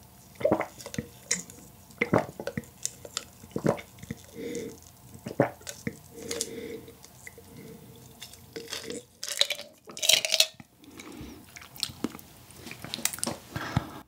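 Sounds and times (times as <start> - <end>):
swallowing gulps: 0.4 - 9.1.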